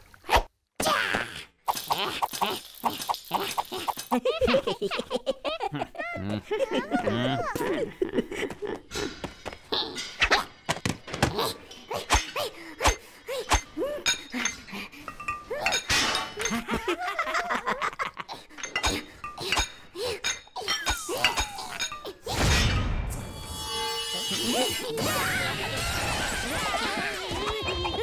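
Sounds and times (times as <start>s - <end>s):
cartoon character laughter: 1.8s - 8.3s, 25.0s - 28.0s
comic cartoon music: 24.3s - 28.0s.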